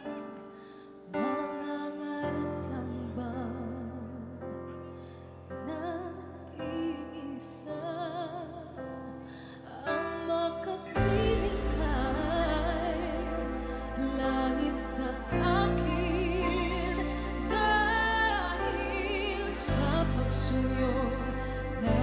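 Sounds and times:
soft sustained accompaniment: 1.1s - 22.0s
woman singing with vibrato: 9.6s - 22.0s.

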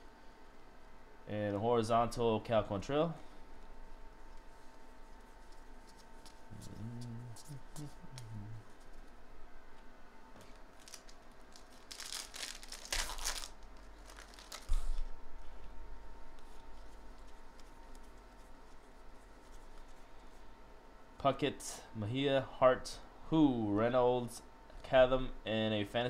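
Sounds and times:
soft handling of cards: 3.5s - 20.6s
foil wrapper tearing and crinkling: 10.7s - 15.0s.

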